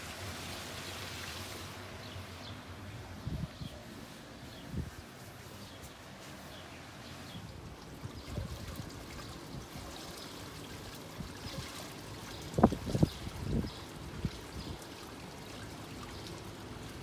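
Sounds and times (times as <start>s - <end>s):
water trickling: 6.6s - 17.0s.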